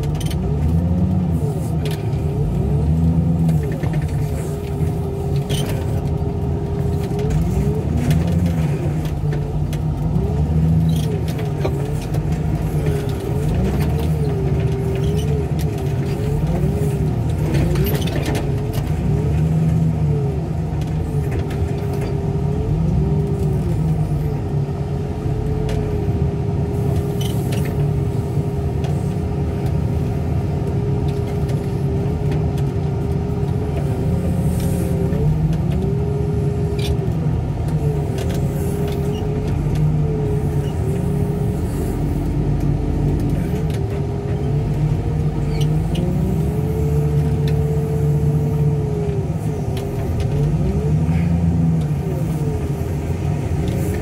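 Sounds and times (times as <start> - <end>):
diesel engine running: 0.0 - 54.0.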